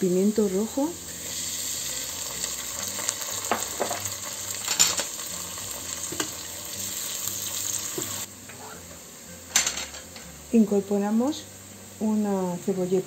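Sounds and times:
peppers sizzling in oil: 0.0s - 13.0s.

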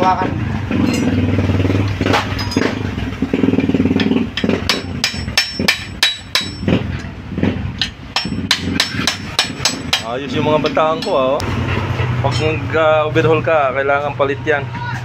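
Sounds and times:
engine running: 0.0s - 15.0s
hammer striking steel punch: 4.0s - 6.8s, 7.8s - 11.3s.

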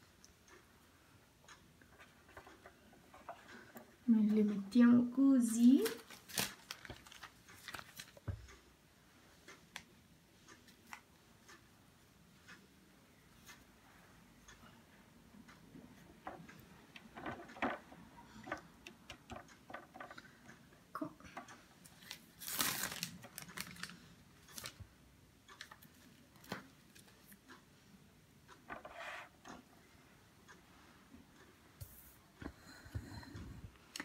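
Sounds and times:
pasta sheets clicking and tapping: 0.0s - 4.8s, 5.4s - 8.8s, 9.4s - 11.7s, 15.4s - 29.7s.

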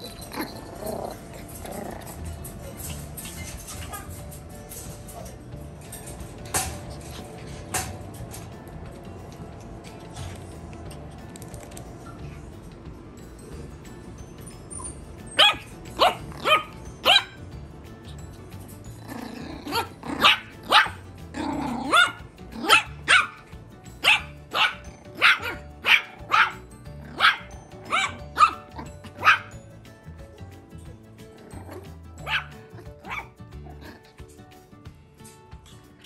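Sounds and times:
puppy barking high-pitched yaps: 15.3s - 17.4s, 19.7s - 21.0s, 21.9s - 23.4s, 24.0s - 29.5s, 32.2s - 33.4s.

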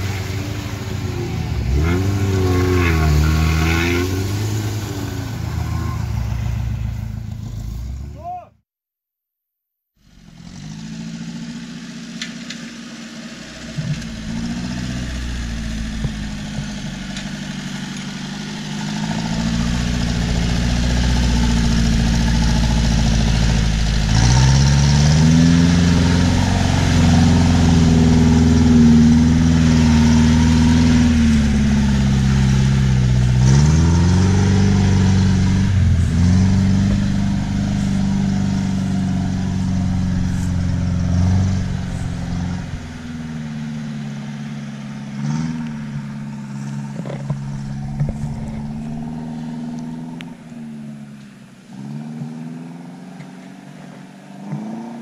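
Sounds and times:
off-roader engine labouring: 0.0s - 8.5s, 10.0s - 55.0s.

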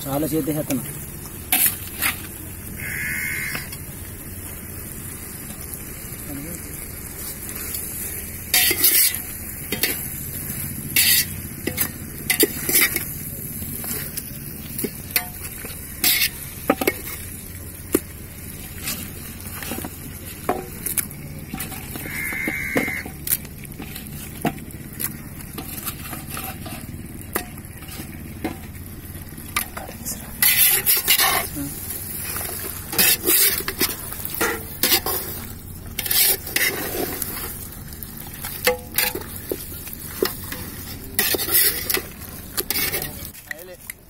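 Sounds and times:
meat sizzling in a pot: 0.0s - 43.6s
ladle scraping and knocking pot: 30.4s - 31.6s, 32.3s - 37.4s.

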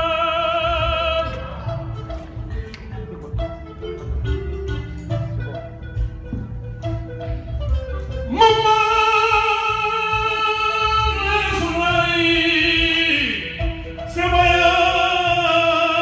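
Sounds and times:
man singing into microphone: 0.0s - 1.6s, 8.3s - 16.0s.

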